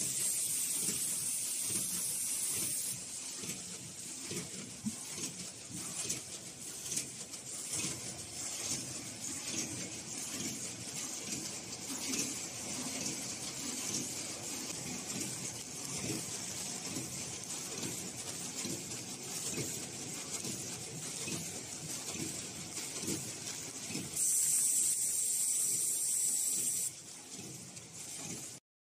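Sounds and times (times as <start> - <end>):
packaging machine hissing: 0.0 - 3.0, 24.2 - 26.9.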